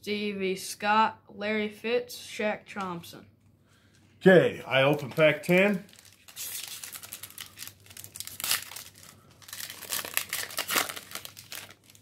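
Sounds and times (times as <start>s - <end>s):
foil wrapper crinkling and tearing: 4.7s - 12.0s.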